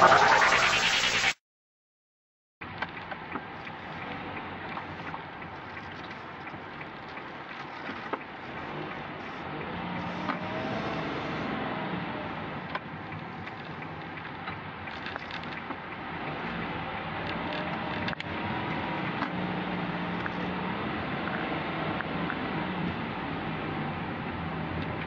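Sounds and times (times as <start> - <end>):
car road and engine noise: 2.6 - 25.0
small clicks and ticks: 12.7 - 18.3.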